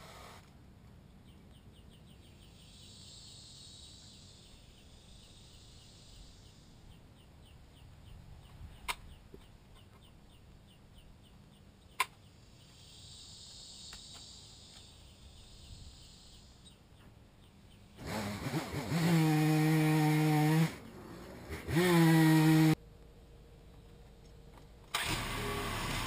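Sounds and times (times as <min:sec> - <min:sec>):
faint insect chirping: 0:02.4 - 0:07.1, 0:12.3 - 0:17.7
chainsaw running at high revs: 0:18.0 - 0:20.8, 0:21.5 - 0:22.8, 0:25.1 - 0:26.0.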